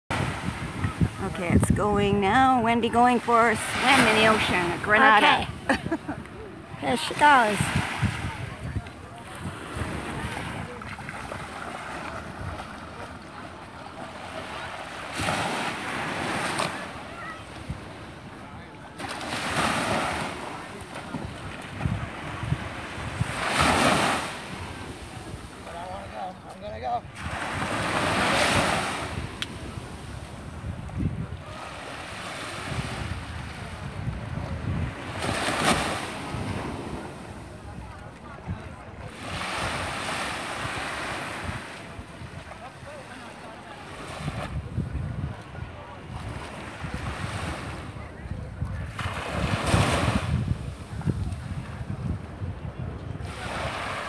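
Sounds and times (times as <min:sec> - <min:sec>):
wind buffeting microphone: 0:00.1 - 0:13.7, 0:14.5 - 0:25.6, 0:26.8 - 0:43.0, 0:44.0 - 0:54.0
surf washing on sandy beach: 0:00.1 - 0:54.0
wave breaking on shore: 0:00.1 - 0:54.0.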